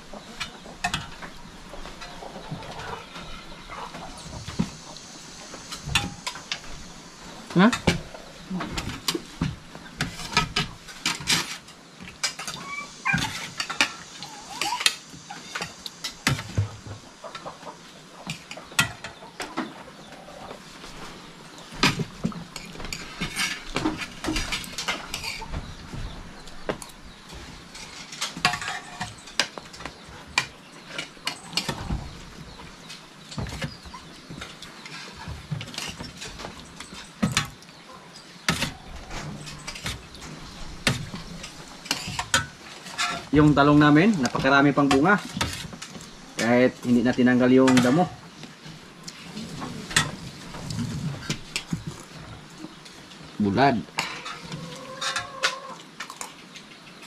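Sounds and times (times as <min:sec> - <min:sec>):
utensils and dishes clinking: 0:27.7 - 0:32.0, 0:34.4 - 0:48.1.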